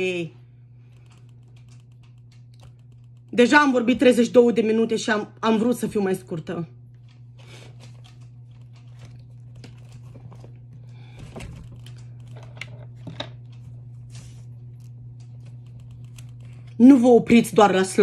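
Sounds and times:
steady low hum: 0.0s - 18.0s
book pages rustling: 7.2s - 10.8s.

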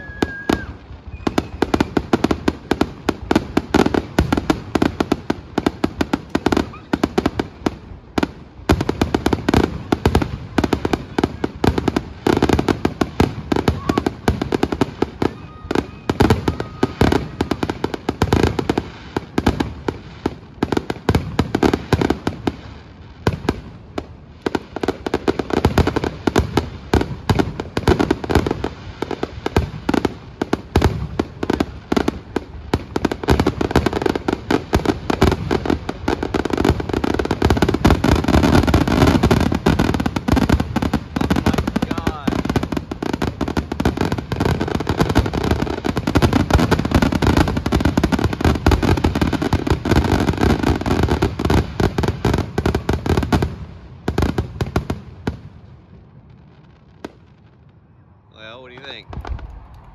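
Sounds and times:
firework shells bursting: 58.7s - 59.9s.

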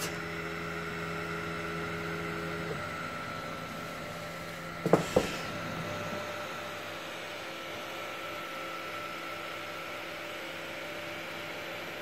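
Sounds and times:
laser engraver fan and motor hum: 0.0s - 12.0s.

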